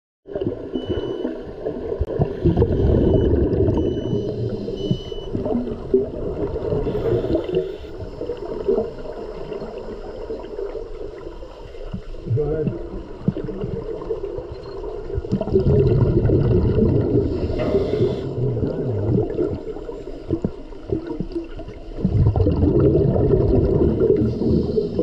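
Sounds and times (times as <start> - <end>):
bubbles gurgling underwater: 0.3 - 11.2, 11.8 - 25.0
short high beeps: 0.7 - 1.4, 2.9 - 5.6, 14.5 - 14.8.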